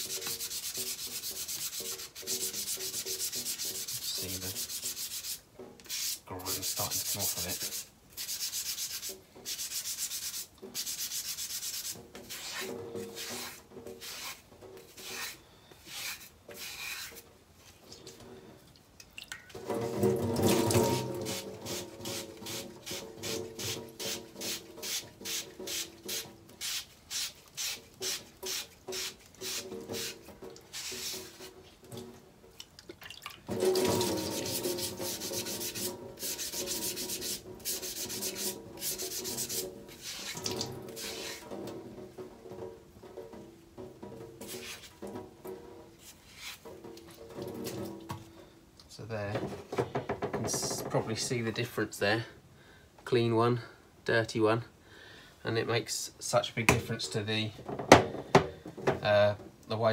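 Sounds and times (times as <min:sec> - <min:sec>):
scouring pad scrubbing ceramic: 0:33.6 - 0:41.5.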